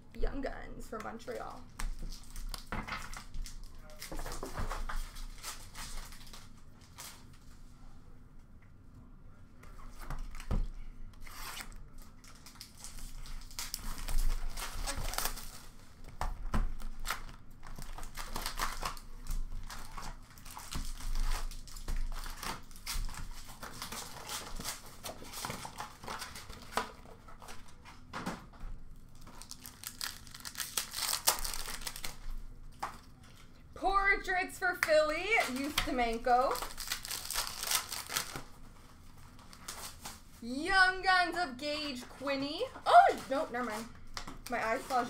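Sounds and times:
foil wrappers tearing and crumpling: 1.9 - 7.4, 11.2 - 16.0, 16.6 - 27.7, 29.0 - 33.5, 35.0 - 40.4.

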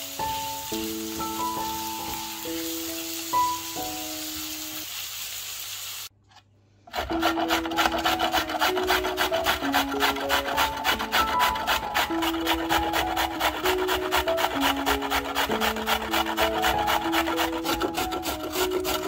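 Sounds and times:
onions sizzling in oil: 0.0 - 6.1
carrot grating on metal grater: 6.9 - 19.0.

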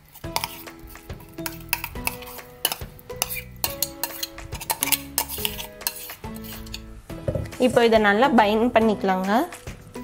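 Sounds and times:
background music: 0.0 - 10.0
spoon clinking on steel bowls: 0.2 - 6.9.

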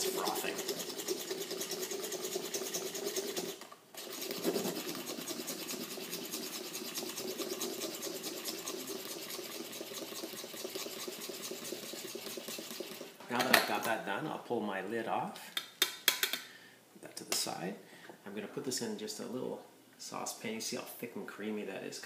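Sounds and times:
press plunger pumping through milk: 0.0 - 13.2.

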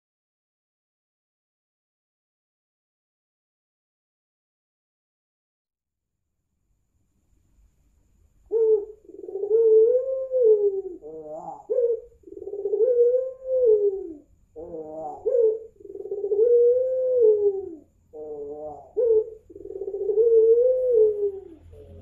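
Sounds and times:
dove cooing: 8.5 - 22.0.

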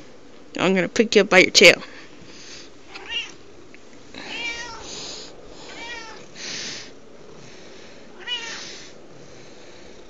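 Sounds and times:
cat meowing: 2.9 - 3.4, 4.2 - 4.9, 5.7 - 6.3, 8.2 - 8.6.

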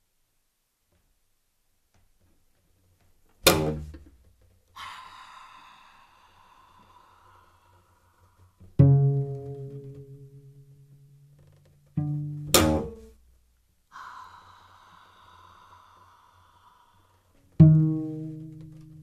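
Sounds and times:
cello percussive strike: 3.4 - 4.1, 8.7 - 13.2, 17.5 - 19.0
high airy cello sound: 4.8 - 11.3, 11.9 - 13.2, 13.9 - 19.0
loud low plucked cello note: 8.8 - 13.2, 17.6 - 19.0.

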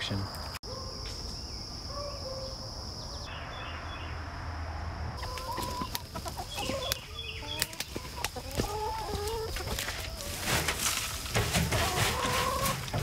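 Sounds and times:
hens clucking: 5.2 - 13.0.

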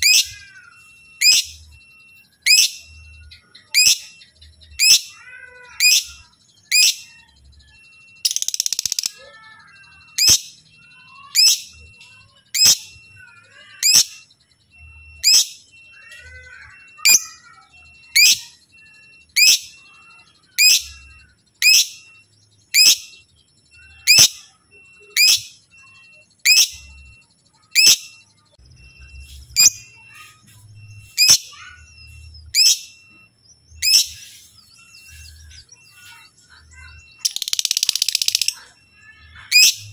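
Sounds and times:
bird chirping shrilly: 0.0 - 39.9.

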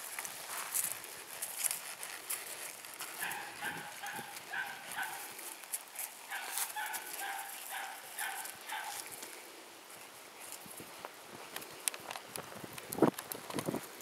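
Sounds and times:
dog barking: 3.2 - 5.3, 6.3 - 9.0.

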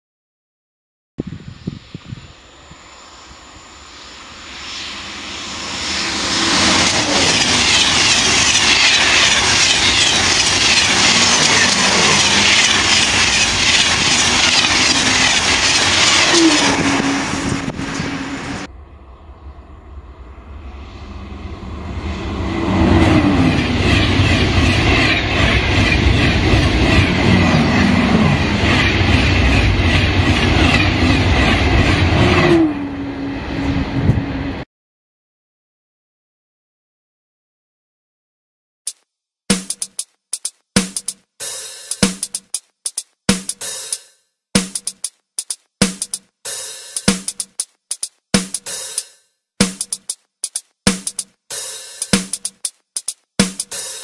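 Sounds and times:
high-speed train passing: 1.3 - 34.6, 40.8 - 54.0
falling whines: 2.2 - 23.8.

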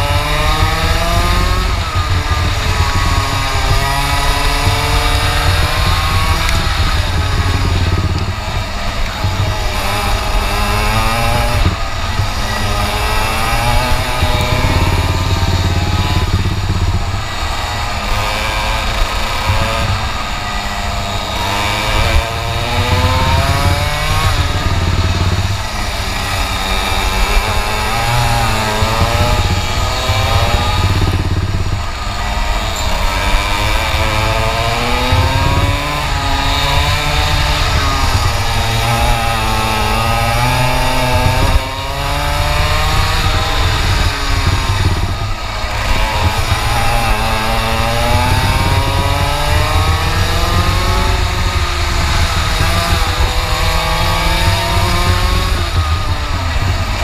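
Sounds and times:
kart engine revving: 0.0 - 57.0.

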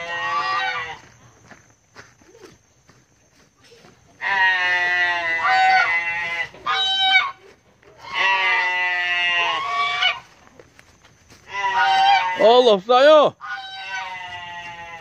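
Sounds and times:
goose honking: 0.0 - 1.0, 4.2 - 7.4, 8.0 - 10.3, 11.5 - 12.6, 13.4 - 15.0.

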